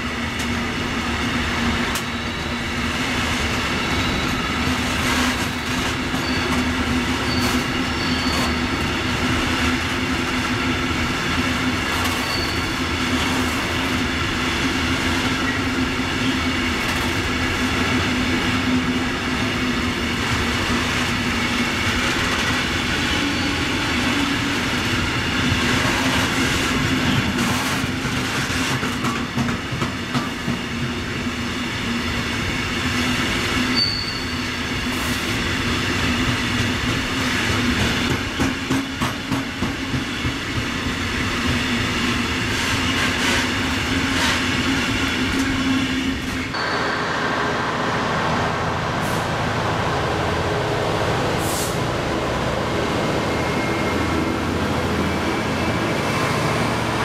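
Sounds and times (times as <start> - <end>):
train wheels rumbling on track: 0.0 - 57.0
high wheel squeals: 1.9 - 3.0, 3.6 - 5.3, 5.9 - 9.1, 12.0 - 13.4, 23.0 - 24.4, 33.7 - 34.7.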